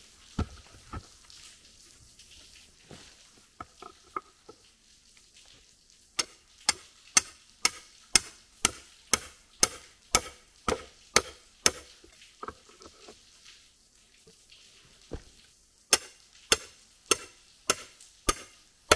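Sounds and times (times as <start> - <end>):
hammer striking rebar: 6.2 - 12.0, 15.9 - 18.9.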